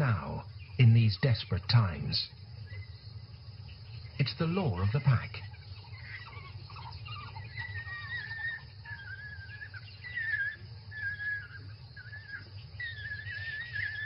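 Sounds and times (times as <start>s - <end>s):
low steady rumble: 0.0s - 14.0s
wild dogs whining calls: 4.8s - 14.0s.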